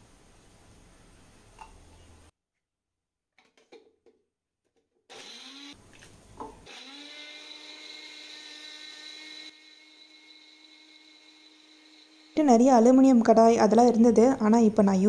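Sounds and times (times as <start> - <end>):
electric mixer grinder whining: 5.1 - 5.8, 6.6 - 12.9.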